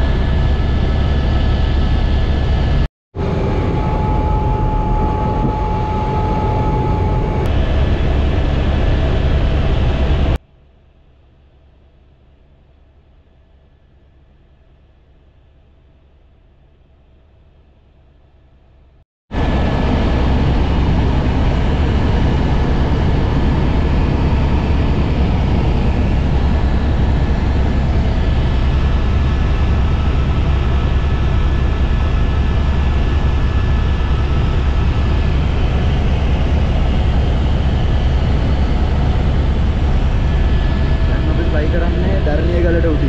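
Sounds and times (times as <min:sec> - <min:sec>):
helicopter rotor rumble: 0:00.0 - 0:10.4, 0:19.4 - 0:43.0
thin steady whine: 0:00.0 - 0:10.4, 0:19.4 - 0:43.0.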